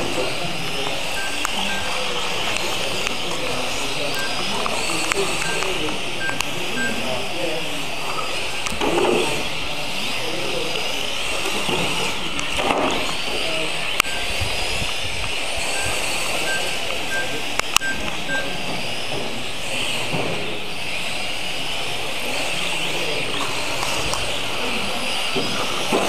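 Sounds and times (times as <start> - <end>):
rc car motors whining: 0.0 - 26.0
short beeps: 1.1 - 7.2, 14.0 - 14.3, 15.8 - 18.8.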